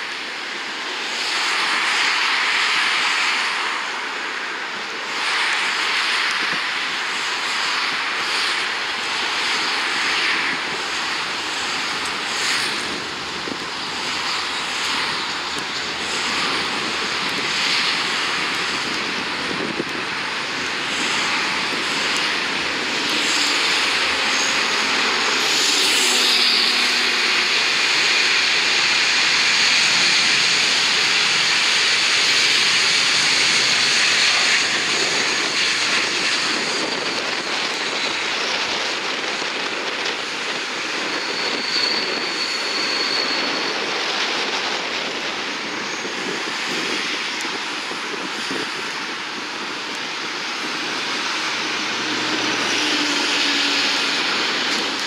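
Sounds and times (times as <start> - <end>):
jet engines roaring: 0.0 - 55.0
high whine: 9.0 - 55.0.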